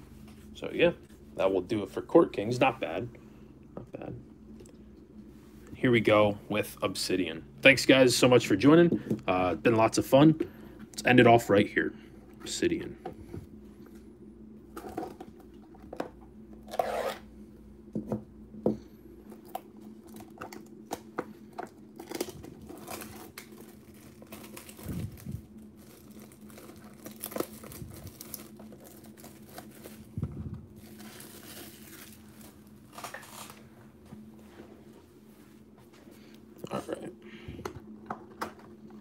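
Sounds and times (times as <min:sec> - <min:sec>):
plastic shrink wrap tearing and crinkling: 0:21.9 - 0:33.7.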